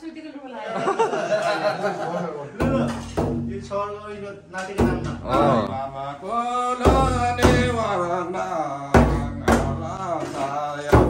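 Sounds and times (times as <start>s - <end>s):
frame drum strokes: 2.6s - 3.8s, 4.8s - 5.7s
man singing: 3.9s - 11.0s.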